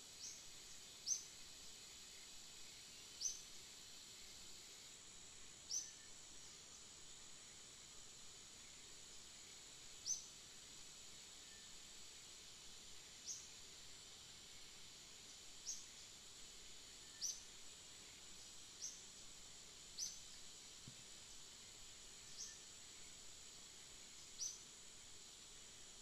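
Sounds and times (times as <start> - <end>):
high insect drone: 0.0 - 26.0.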